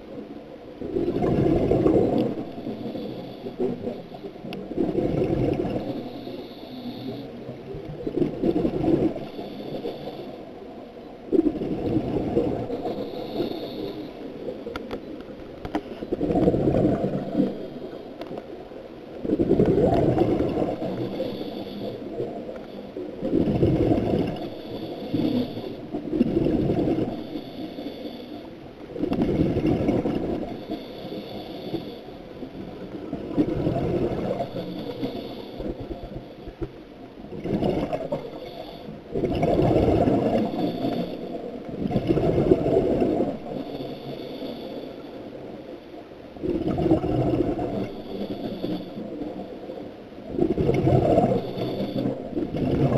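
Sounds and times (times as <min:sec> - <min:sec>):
exhaled bubbles rushing: 0:00.8 - 0:02.5, 0:04.6 - 0:06.0, 0:07.9 - 0:09.3, 0:11.3 - 0:13.0, 0:16.1 - 0:17.6, 0:19.2 - 0:21.1, 0:23.2 - 0:24.5, 0:26.0 - 0:27.1, 0:29.0 - 0:30.6, 0:32.9 - 0:34.6, 0:37.3 - 0:38.4, 0:39.1 - 0:41.1, 0:41.7 - 0:43.5, 0:46.4 - 0:48.0, 0:50.2 - 0:52.9
scuba regulator inhale hiss: 0:02.6 - 0:04.0, 0:05.8 - 0:07.4, 0:09.2 - 0:10.6, 0:12.7 - 0:14.4, 0:20.5 - 0:23.0, 0:24.3 - 0:25.9, 0:27.0 - 0:28.5, 0:30.3 - 0:32.2, 0:34.3 - 0:36.4, 0:38.2 - 0:39.0, 0:40.2 - 0:41.5, 0:43.4 - 0:45.5, 0:47.7 - 0:49.6, 0:51.3 - 0:52.2.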